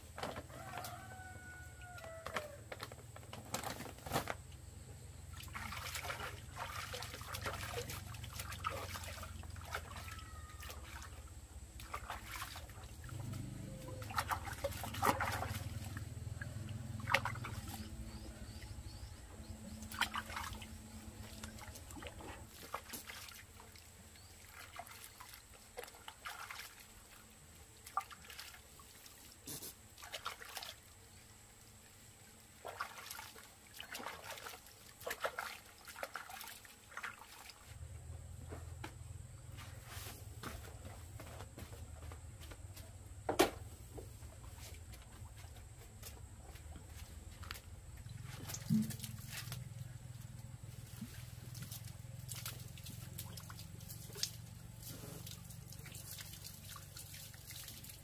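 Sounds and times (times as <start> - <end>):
water splashing in plastic basin: 5.3 - 18.7, 19.7 - 27.2, 27.8 - 29.3, 29.9 - 30.9, 32.6 - 37.8, 44.5 - 58.0
water trickling: 12.7 - 29.2, 47.4 - 58.0.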